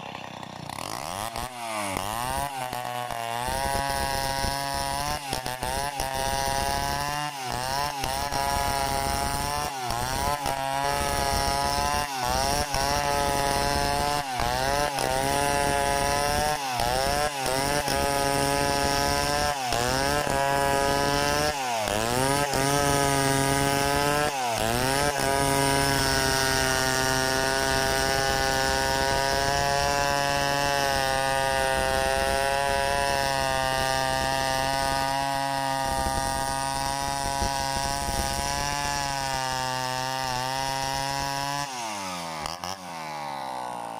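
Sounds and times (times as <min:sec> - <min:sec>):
chainsaw cutting a log: 0:00.0 - 0:43.9.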